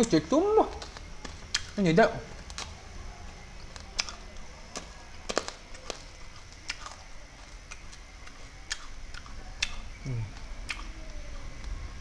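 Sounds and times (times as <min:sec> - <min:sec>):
wet mouth clicks and lip smacks: 0:10.6 - 0:10.9.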